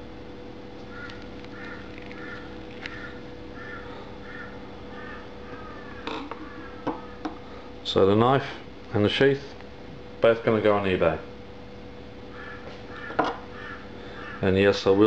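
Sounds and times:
steady low hum: 0.0 - 15.0
crow cawing: 0.9 - 7.4, 12.3 - 14.6.

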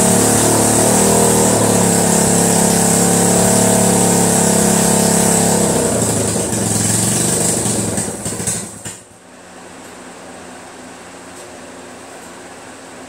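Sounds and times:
motorcycle engine running: 0.0 - 9.2.

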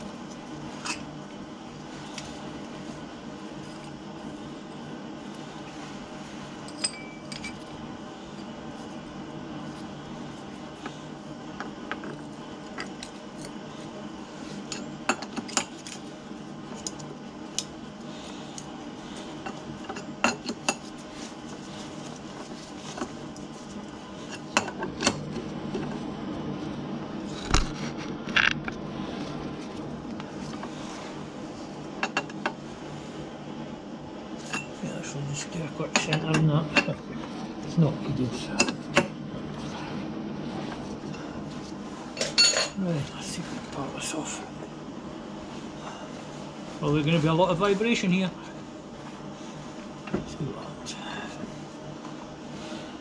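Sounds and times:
steady low hum: 0.0 - 53.0
metallic clinks of steel tools: 6.7 - 7.6.

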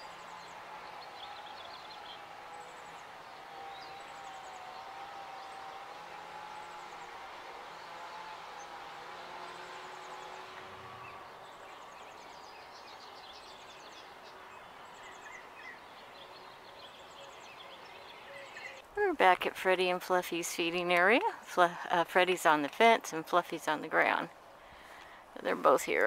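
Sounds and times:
small birds chirping and trilling: 0.0 - 18.8
outdoor background hum: 0.0 - 26.0.

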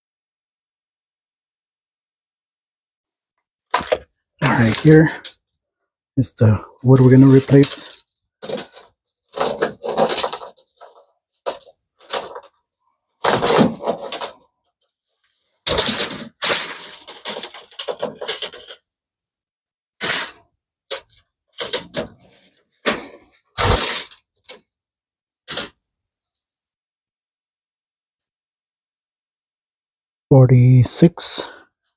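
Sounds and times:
debris clattering and cracking: 3.7 - 5.6, 6.8 - 12.6, 13.2 - 14.5, 15.6 - 18.8, 20.0 - 24.7.

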